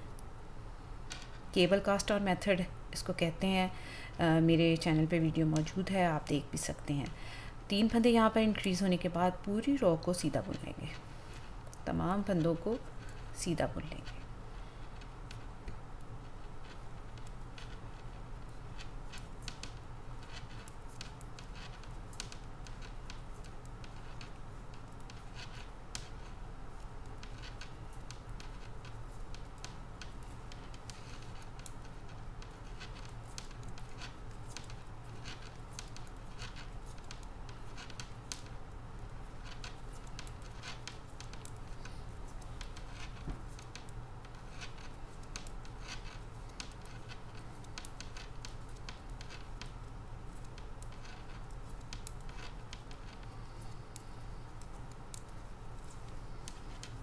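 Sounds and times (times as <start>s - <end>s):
steady low hum: 0.0s - 57.0s
metal knitting needles clicking: 16.6s - 57.0s.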